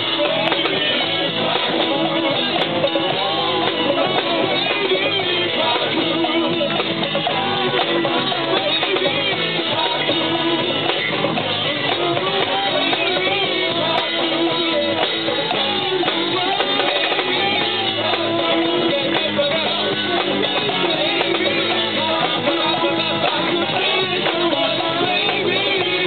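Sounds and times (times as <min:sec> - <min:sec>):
drum kit: 0:00.0 - 0:26.0
electric guitars: 0:00.0 - 0:26.0.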